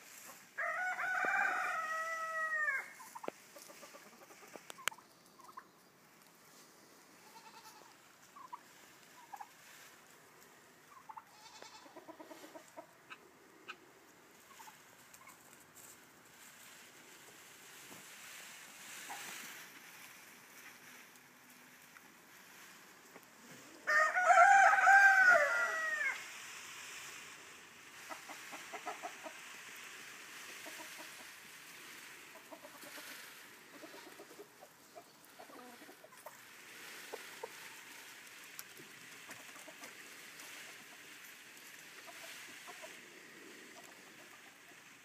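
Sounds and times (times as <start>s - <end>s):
rooster crowing: 0.6s - 3.0s, 23.8s - 26.2s
soft clucking: 3.0s - 5.8s, 32.0s - 36.4s.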